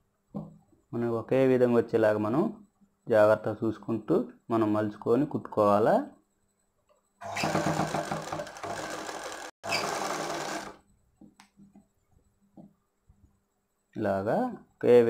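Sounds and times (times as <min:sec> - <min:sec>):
sewing machine stitching: 0:07.2 - 0:10.8.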